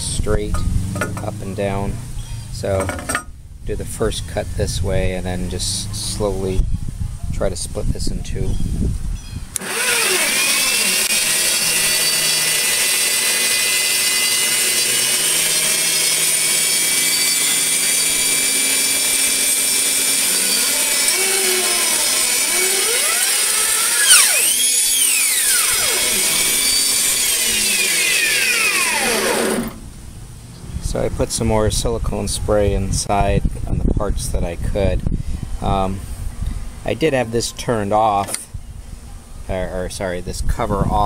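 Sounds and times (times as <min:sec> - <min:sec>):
band saw cutting wood: 0:00.0 - 0:03.2, 0:09.6 - 0:29.9.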